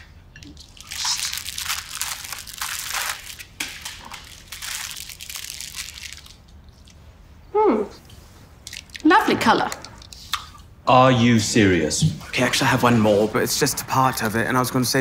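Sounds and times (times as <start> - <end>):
pastry crunching and crumbling: 0.6 - 6.6.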